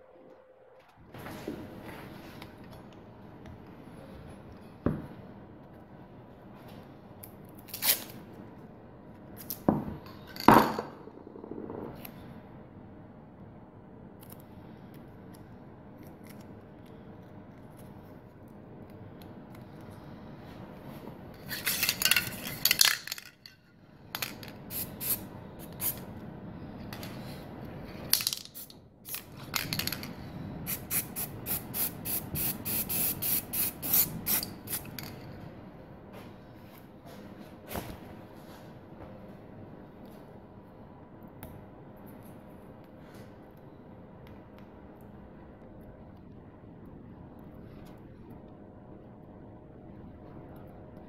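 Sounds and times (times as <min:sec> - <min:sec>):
aerosol spray can bursts: 0:30.7 - 0:34.8.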